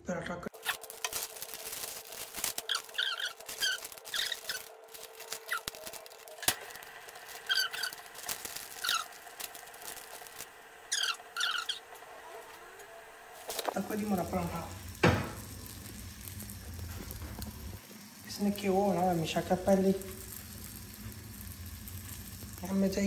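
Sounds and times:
plastic packaging crinkling: 0.5 - 11.8, 13.4 - 17.8.

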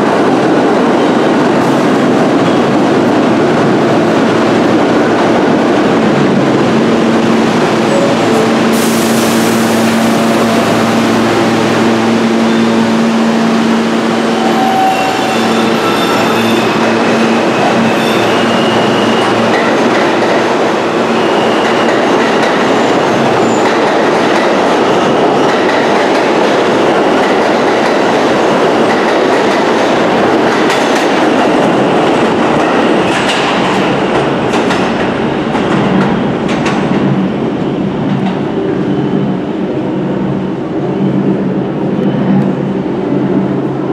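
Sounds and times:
subway train motor whine: 1.4 - 33.1.

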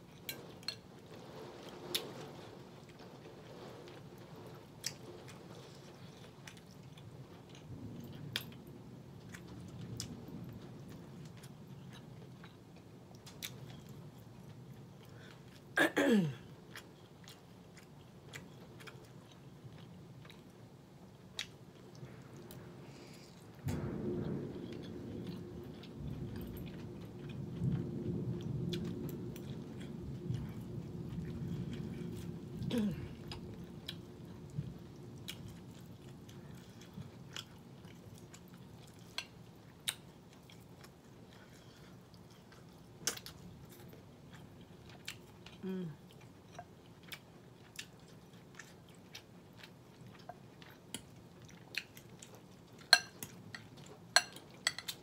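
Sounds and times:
chewing and mouth sounds: 1.7 - 15.8, 16.4 - 23.6, 24.8 - 55.0
low rumble: 22.0 - 37.4
fork clicking against glass bowl: 52.9 - 53.1.

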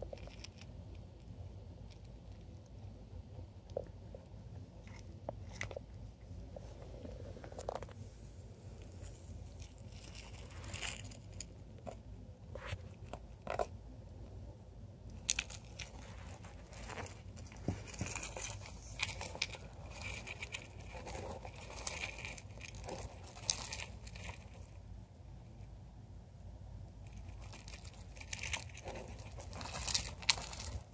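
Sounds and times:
rodent rustling in wood shavings: 6.5 - 11.5, 15.4 - 24.8, 27.1 - 30.9.

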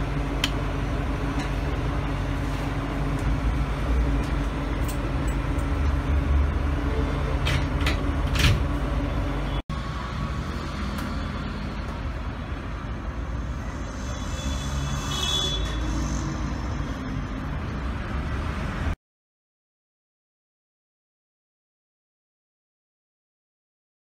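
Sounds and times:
refrigeration machine hum: 0.0 - 18.1.

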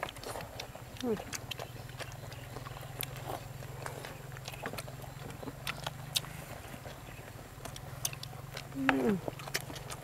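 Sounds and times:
crusty bread being chewed: 0.0 - 10.0
steady low hum: 0.0 - 10.0.

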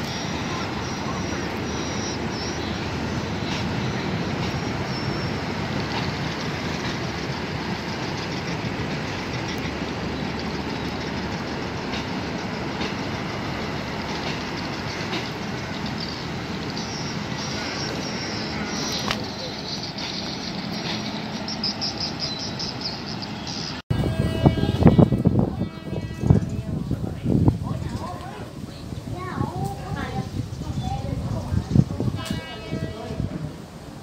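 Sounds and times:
wheels clicking over rail joints: 0.0 - 23.7
locomotive engine and rolling train: 0.0 - 34.0.

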